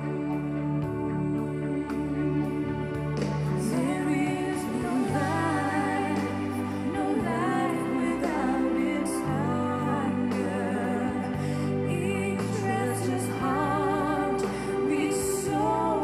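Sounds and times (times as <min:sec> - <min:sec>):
person singing: 0:00.0 - 0:16.0
song on portable speaker: 0:00.0 - 0:16.0.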